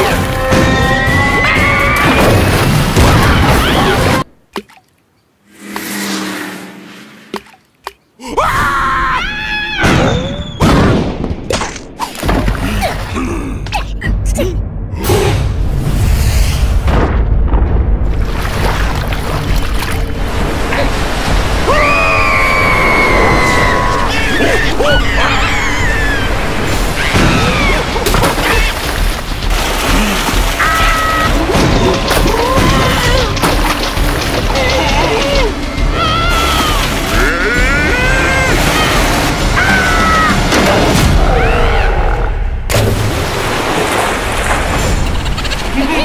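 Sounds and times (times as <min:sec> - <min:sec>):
water churning and splashing: 0:00.0 - 0:05.1, 0:07.2 - 0:08.2, 0:11.5 - 0:13.6, 0:17.9 - 0:41.9, 0:42.6 - 0:46.0
rush of noise: 0:05.4 - 0:07.7.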